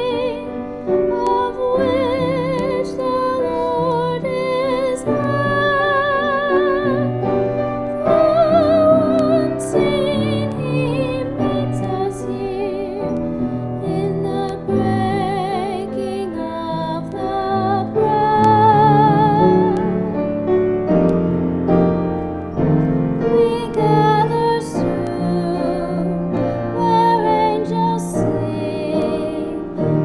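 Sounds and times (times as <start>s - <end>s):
instrumental accompaniment: 0.0s - 30.0s
woman singing with vibrato: 1.1s - 7.2s, 8.0s - 13.2s, 13.8s - 20.0s, 23.3s - 29.8s.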